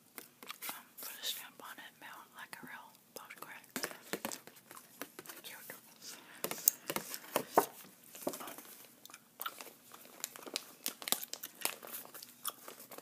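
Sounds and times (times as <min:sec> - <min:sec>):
paper and foil crinkling: 0:06.5 - 0:13.0.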